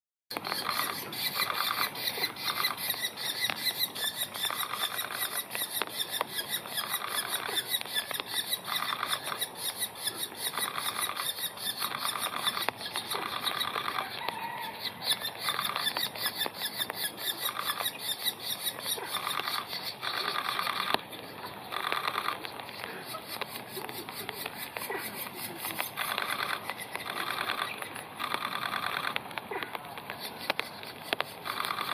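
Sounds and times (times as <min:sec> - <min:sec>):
nestling buzzy chattering call: 0:00.3 - 0:31.9.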